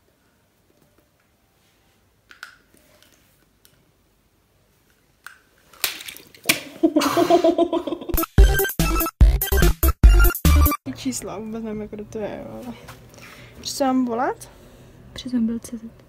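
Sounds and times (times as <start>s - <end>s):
music with heavy bass beat: 8.2s - 10.8s.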